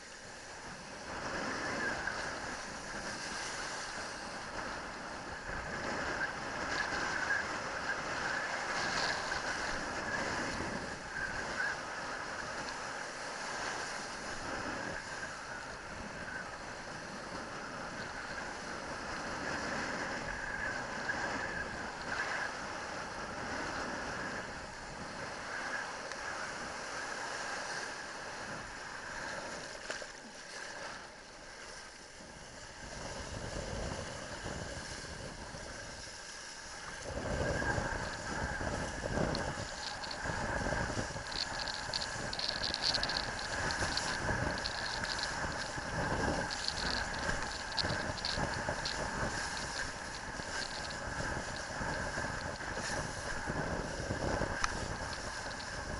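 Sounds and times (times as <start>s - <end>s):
wind buffeting camera: 0.6s - 29.6s, 32.6s - 55.9s
water rushing and spraying: 33.3s - 55.9s.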